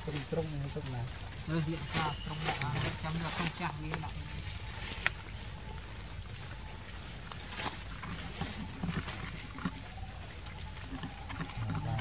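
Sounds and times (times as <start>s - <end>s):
faint rustles: 0.0s - 12.0s
steady low rumble: 2.6s - 12.0s.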